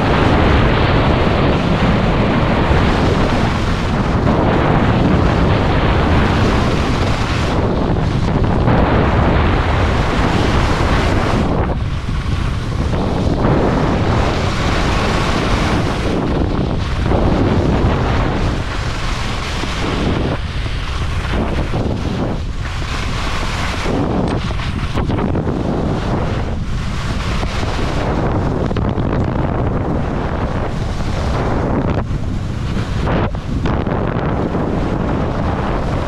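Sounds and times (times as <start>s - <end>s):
wind buffeting microphone: 0.0s - 36.0s
skis hissing on snow: 17.9s - 28.4s.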